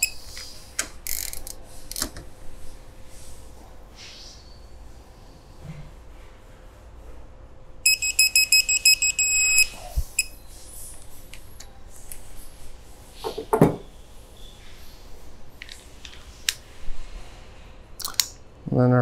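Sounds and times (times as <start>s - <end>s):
torque wrench beeping: 0.0s - 0.2s, 7.9s - 10.4s.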